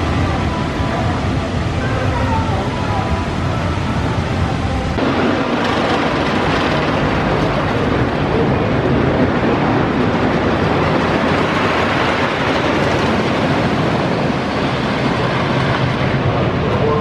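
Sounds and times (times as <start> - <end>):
roller coaster wheels rattling on wood: 5.0 - 17.0.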